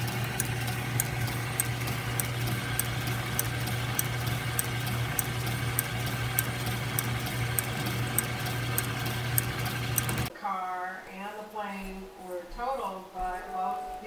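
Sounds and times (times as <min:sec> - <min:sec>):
lathe motor hum: 0:00.0 - 0:10.3
light ticking: 0:00.0 - 0:10.3.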